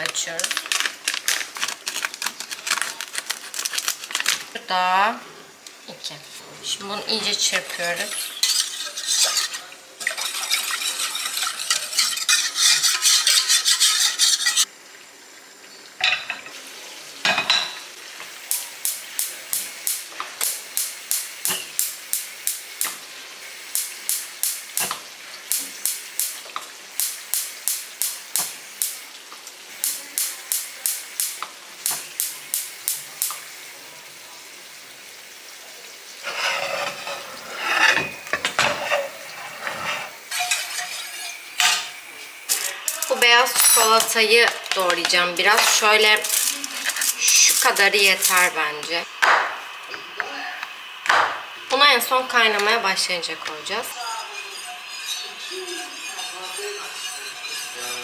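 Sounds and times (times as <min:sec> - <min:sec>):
whisk beating in metal pot: 0:07.3 - 0:14.7, 0:53.6 - 0:58.0.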